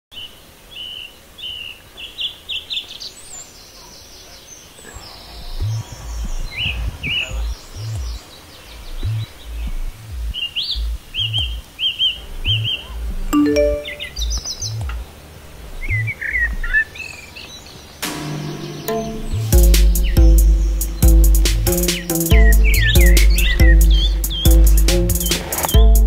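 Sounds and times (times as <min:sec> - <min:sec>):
small birds chirping: 0:00.1 - 0:26.0
deep pulsing bass music: 0:08.8 - 0:11.6, 0:18.7 - 0:26.0.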